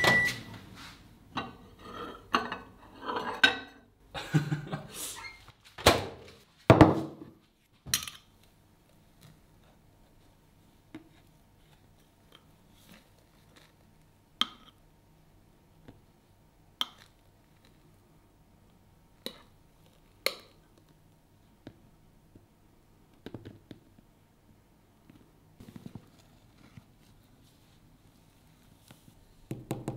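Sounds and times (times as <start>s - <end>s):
kitchen knocks and clatters: 2.2s - 3.8s, 5.8s - 7.3s.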